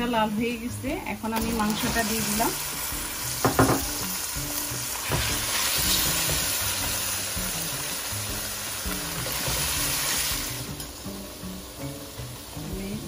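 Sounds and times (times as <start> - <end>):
chicken sizzling in a pan: 0.0 - 13.0
spatula knocking on a pan: 3.4 - 4.1, 5.0 - 7.6.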